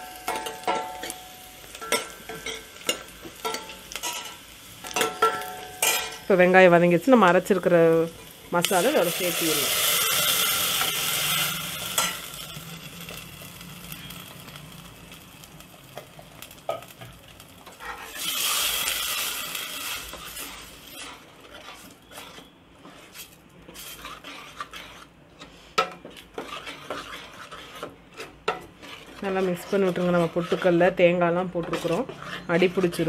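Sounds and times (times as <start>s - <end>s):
paste sizzling in hot oil: 1.2s - 33.0s
ladle scraping a pot: 17.7s - 33.0s.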